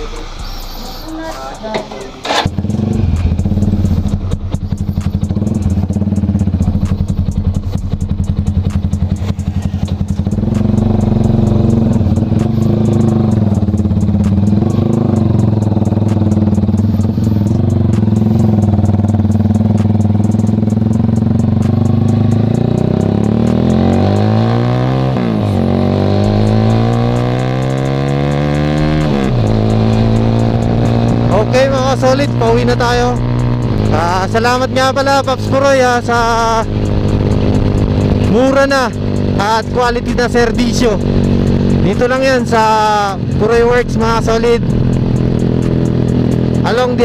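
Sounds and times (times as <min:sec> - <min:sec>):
motorcycle engine idling and revving: 0:00.0 - 0:47.0.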